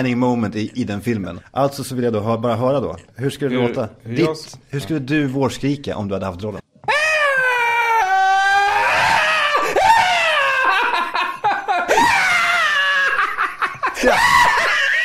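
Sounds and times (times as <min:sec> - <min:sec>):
person whooping: 0:06.9 - 0:11.0.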